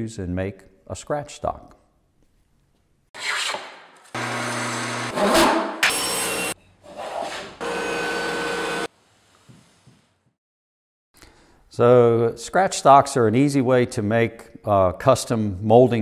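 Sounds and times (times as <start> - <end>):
power saws running: 4.2 - 6.6, 7.6 - 8.9.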